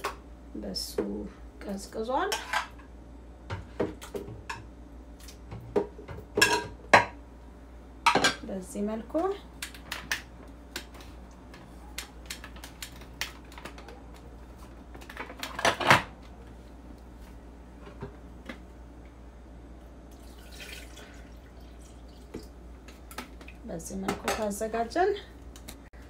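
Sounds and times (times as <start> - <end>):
dishes clattering: 5.6 - 7.2, 8.1 - 8.4
dishes and utensils clinking: 5.8 - 7.2.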